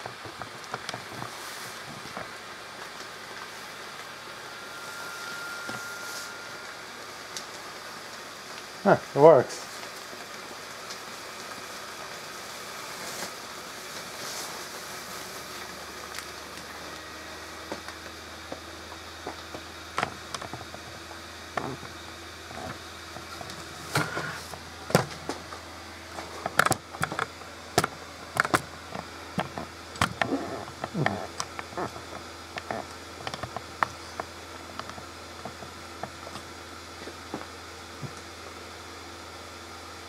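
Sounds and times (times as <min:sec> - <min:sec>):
electric fan humming: 0:00.0 - 0:40.0
sharp clicks and knocks: 0:26.2 - 0:36.5.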